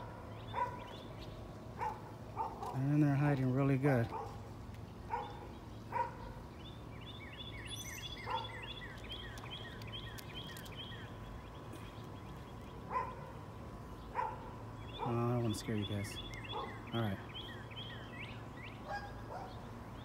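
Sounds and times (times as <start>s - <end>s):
dog barking: 0.0s - 0.9s, 1.8s - 2.9s, 4.1s - 4.4s, 5.1s - 6.3s, 8.2s - 8.6s, 12.9s - 13.3s, 14.1s - 15.2s, 16.5s - 16.8s, 18.8s - 19.6s
bird chirping: 0.0s - 20.0s.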